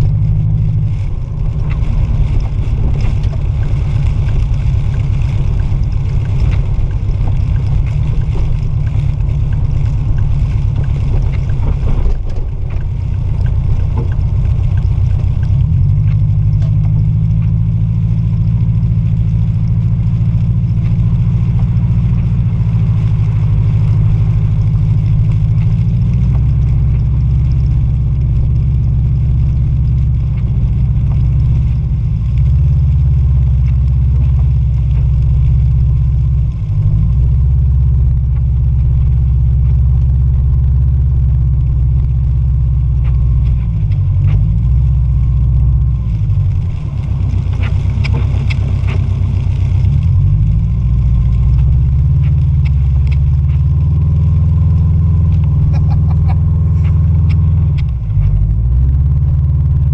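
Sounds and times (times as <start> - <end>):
car engine revving: 0.0 - 59.9
hiss with scattered clicks: 51.2 - 58.4.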